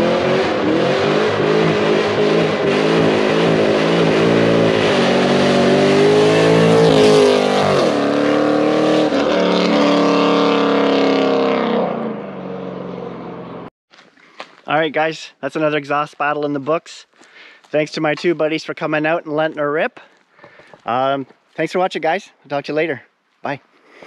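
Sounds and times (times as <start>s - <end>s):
car full-throttle drive-by: 0.0s - 13.7s.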